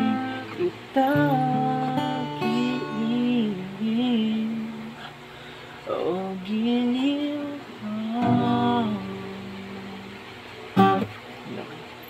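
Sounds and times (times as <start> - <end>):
man singing long notes: 0.0 - 5.1, 5.9 - 10.1
acoustic guitar: 0.0 - 12.0.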